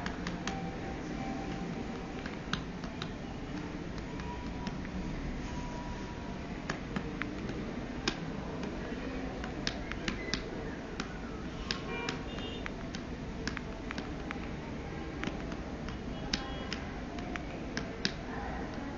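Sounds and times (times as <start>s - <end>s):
phone key clicks: 6.6s - 18.9s.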